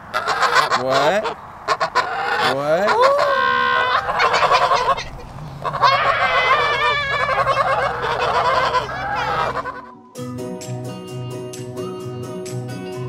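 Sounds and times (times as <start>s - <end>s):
geese honking: 0.0s - 10.0s
music: 8.4s - 13.0s.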